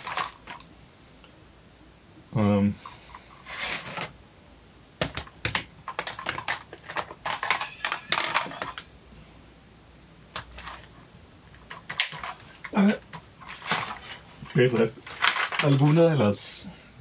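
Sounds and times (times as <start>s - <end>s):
small hard objects clattering: 0.0s - 0.7s, 5.0s - 8.9s, 10.4s - 16.2s.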